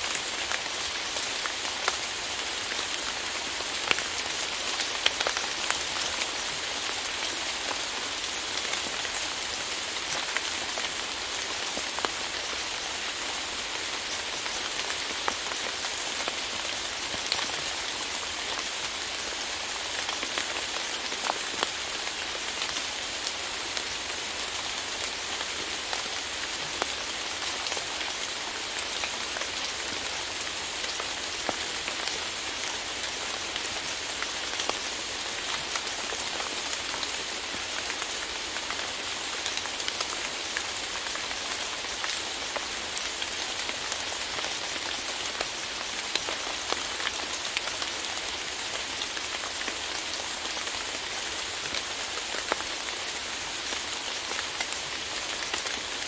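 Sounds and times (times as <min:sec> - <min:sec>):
steady rain: 0:00.0 - 0:56.0.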